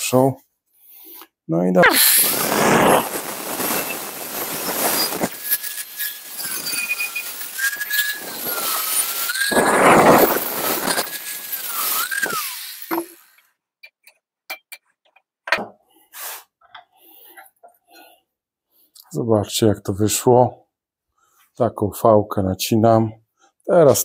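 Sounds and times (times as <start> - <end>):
angle grinder cutting steel: 1.8 - 13.4.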